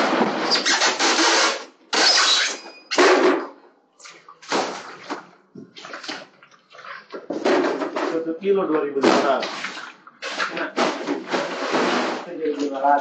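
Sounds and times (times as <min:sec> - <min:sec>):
fish scraping on wet tiled floor: 0:09.4 - 0:12.4.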